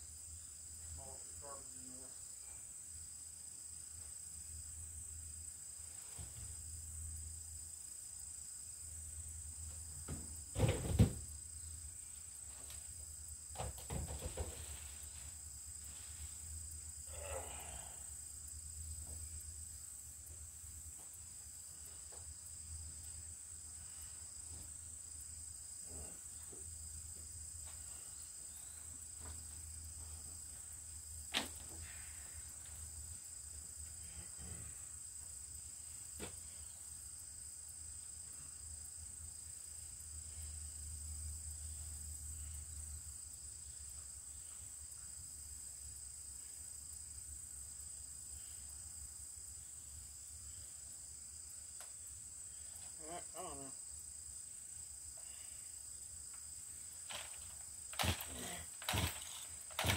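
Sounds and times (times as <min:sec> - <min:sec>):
insects trilling: 0:00.0 - 0:59.9
knocks and clunks: 0:10.0 - 0:11.3, 0:13.5 - 0:14.8, 0:57.1 - 0:59.9.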